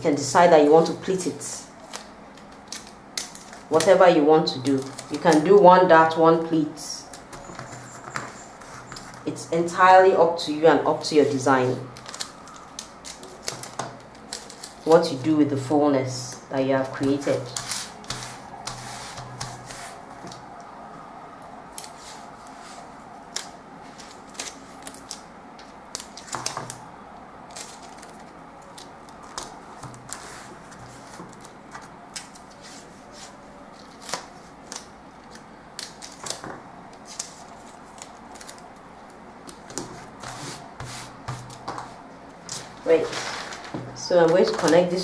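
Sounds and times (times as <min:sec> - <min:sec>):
paper rustling and crackling: 0:04.6 - 0:05.6, 0:11.0 - 0:15.2, 0:21.8 - 0:26.8, 0:27.5 - 0:45.0.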